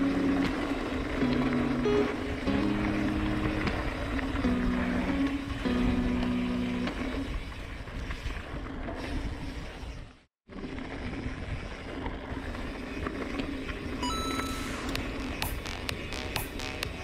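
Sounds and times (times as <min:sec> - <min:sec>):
bike tyres rolling: 0:00.0 - 0:17.0
short steady tones: 0:14.0 - 0:17.0.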